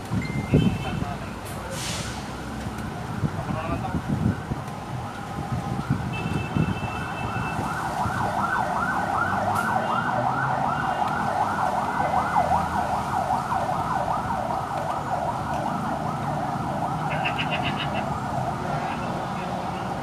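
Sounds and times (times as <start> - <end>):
yelping siren: 4.2 - 20.0.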